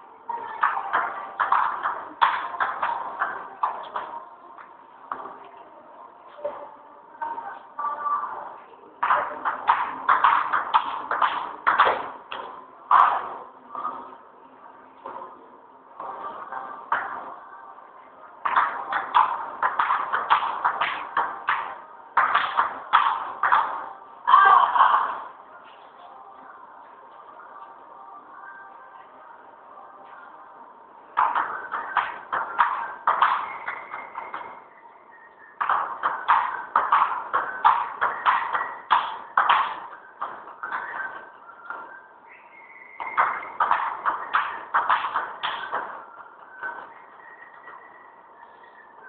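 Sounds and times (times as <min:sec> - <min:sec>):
ping-pong ball hitting paddles: 0:00.6 - 0:04.1, 0:09.0 - 0:13.4, 0:18.4 - 0:23.9, 0:31.2 - 0:34.6, 0:35.6 - 0:41.8, 0:43.0 - 0:46.0.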